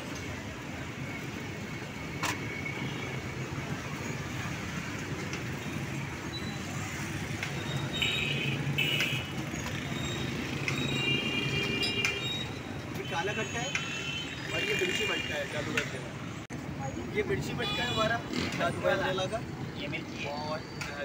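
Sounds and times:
street traffic engine hum: 0:00.0 - 0:21.0.

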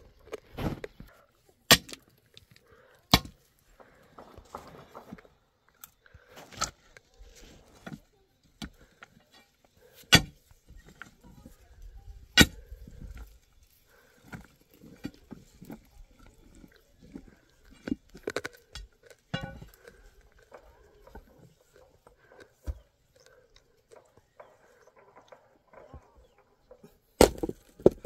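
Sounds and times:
tools striking rock ringing: 0:19.3 - 0:19.8.

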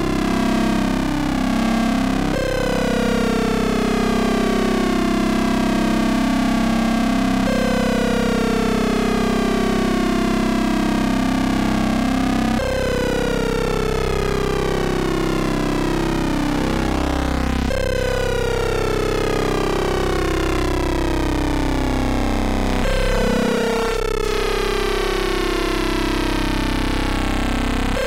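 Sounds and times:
synthesizer drone: 0:14.8 - 0:28.0
gliding high synth partials: 0:22.8 - 0:24.0.

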